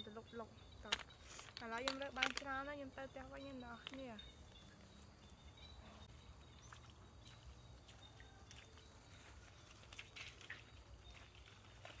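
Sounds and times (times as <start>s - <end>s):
footsteps splashing through puddles: 6.6s - 12.0s.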